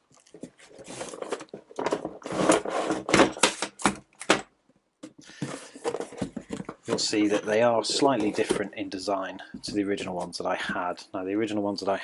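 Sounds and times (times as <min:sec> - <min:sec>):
cardboard clicks and rustles: 0:00.1 - 0:04.5, 0:05.3 - 0:08.7.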